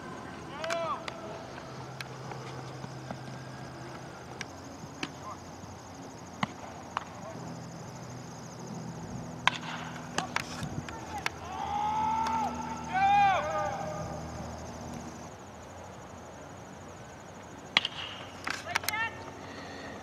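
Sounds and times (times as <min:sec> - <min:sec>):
faint low hum: 0:00.0 - 0:20.0
bat cracking against ball: 0:06.4 - 0:07.1, 0:09.4 - 0:11.4, 0:17.7 - 0:18.9.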